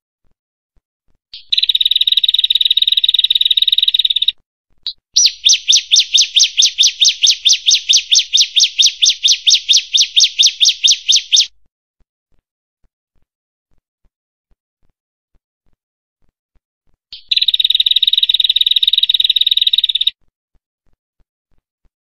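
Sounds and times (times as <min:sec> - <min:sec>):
bird trilling: 0:01.4 - 0:04.3, 0:04.9 - 0:11.5, 0:17.2 - 0:20.1
bird chirp: 0:01.4 - 0:11.5, 0:17.1 - 0:20.1
repeated sharp bird notes: 0:01.4 - 0:11.5, 0:17.2 - 0:20.1.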